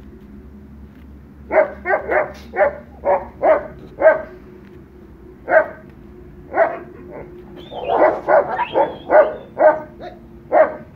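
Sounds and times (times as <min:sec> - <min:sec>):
dog barking: 0:01.5 - 0:04.4, 0:05.5 - 0:05.8, 0:06.5 - 0:10.9.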